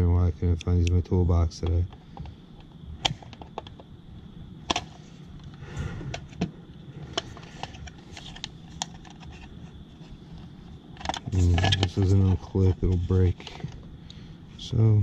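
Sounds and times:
small parts and tools rattling: 1.6s - 3.9s, 7.0s - 13.9s
scraping rustle: 7.0s - 13.8s.

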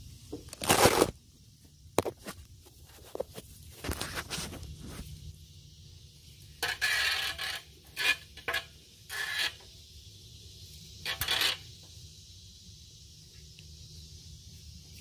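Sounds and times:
metal scraping and rubbing: 6.6s - 9.7s, 11.0s - 11.8s.

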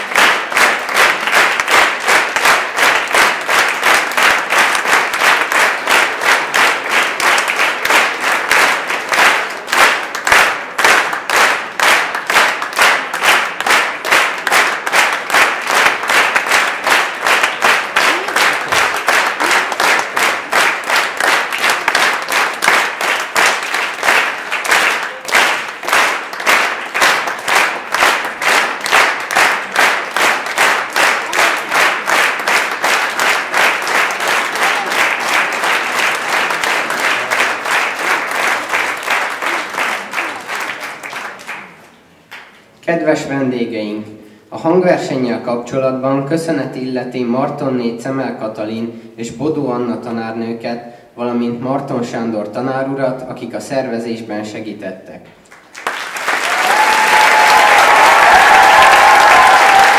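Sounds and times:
audience clapping in unison: 0.0s - 42.8s, 55.3s - 59.9s.

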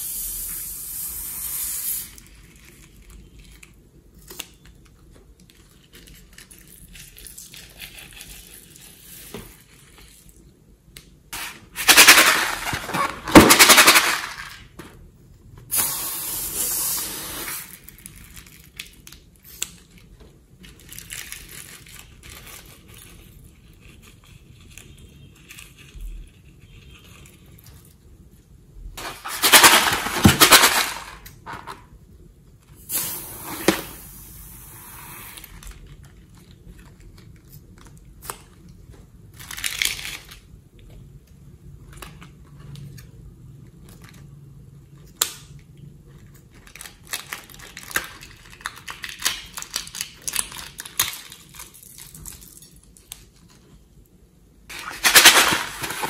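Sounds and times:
plastic packets crinkling: 17.8s - 24.0s, 29.0s - 31.5s, 35.5s - 40.6s, 46.2s - 53.7s, 54.7s - 56.0s.

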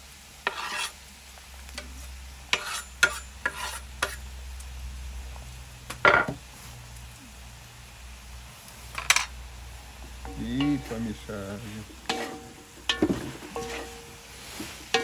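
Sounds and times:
meat sizzling: 0.0s - 15.0s
knife scraping wooden board: 0.4s - 0.9s, 2.5s - 4.2s
metal spatula scraping wok: 0.4s - 1.0s, 1.8s - 4.3s, 10.2s - 15.0s.

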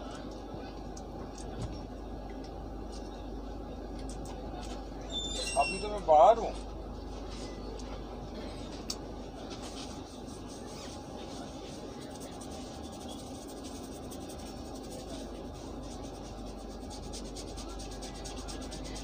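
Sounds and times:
fingers scratching through hair: 9.6s - 19.0s.

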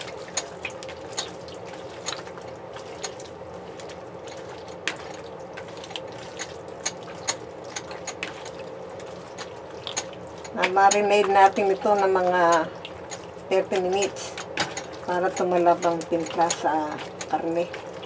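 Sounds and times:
raw meat squelching in marinade: 0.0s - 18.0s.

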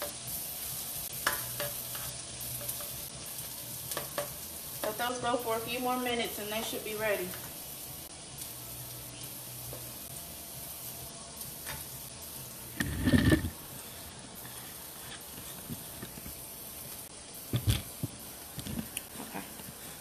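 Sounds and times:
vegetables sizzling in a frying pan: 0.0s - 20.0s.

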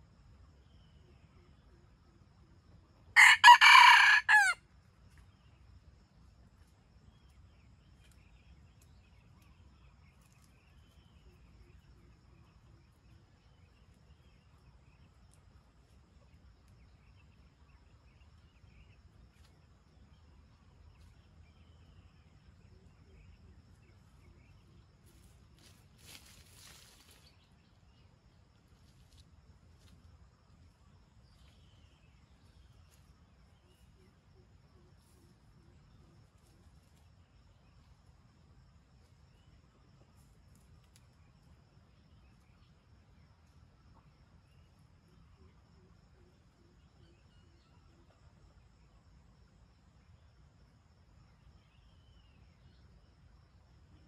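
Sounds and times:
faint distant rooster crow: 3.2s - 4.6s
rooster crowing: 3.2s - 4.6s.

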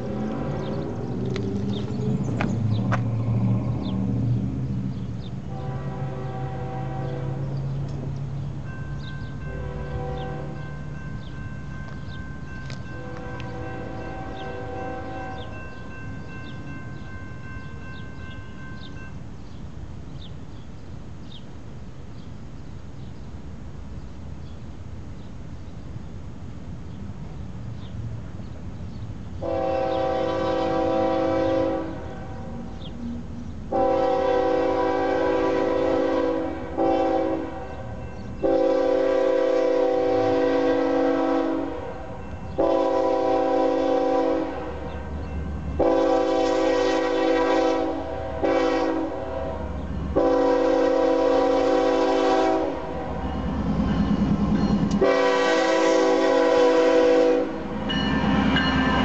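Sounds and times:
locomotive engine rumble: 0.0s - 59.0s
locomotive air horn blasts: 5.5s - 7.6s, 9.4s - 10.7s, 12.9s - 15.6s, 29.4s - 32.6s, 33.7s - 44.9s, 45.8s - 53.2s, 55.0s - 57.7s.

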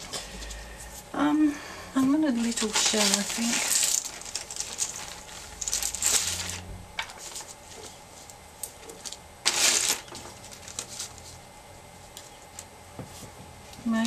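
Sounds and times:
plastic bag crinkling: 2.2s - 11.4s
seashells clicking: 2.7s - 6.6s.

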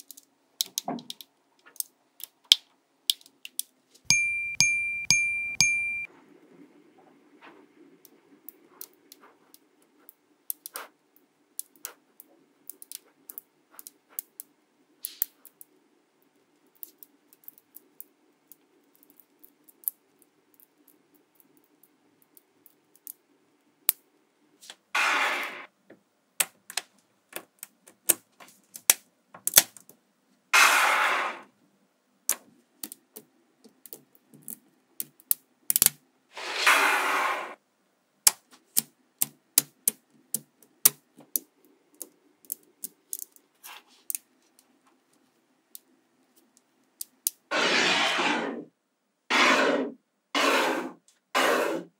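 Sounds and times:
magnetic balls clicking: 0.0s - 6.1s, 11.6s - 15.8s, 38.3s - 43.4s.

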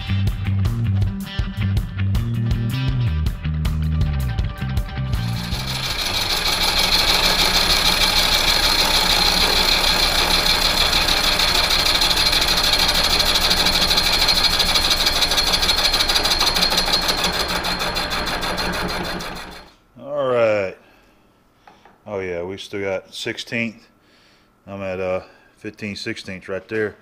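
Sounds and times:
lathe running with ticking hum: 5.2s - 19.7s.

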